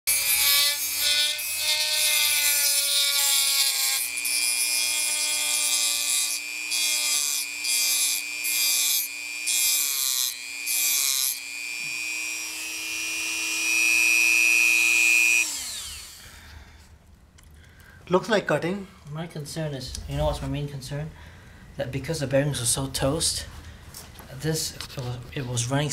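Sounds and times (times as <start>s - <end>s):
rotary tool high whine: 0.1s - 16.5s.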